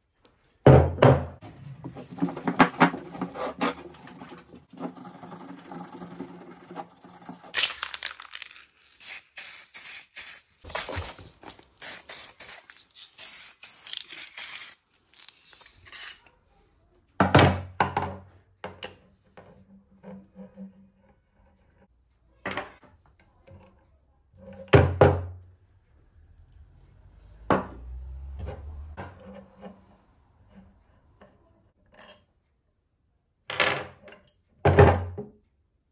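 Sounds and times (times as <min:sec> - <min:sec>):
parts being handled: 0:01.4 - 0:16.3
spray paint can hissing: 0:04.9 - 0:16.1.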